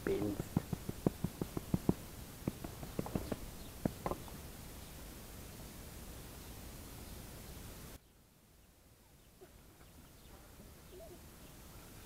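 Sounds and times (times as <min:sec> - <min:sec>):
faint bird chirps: 0:06.3 - 0:12.0.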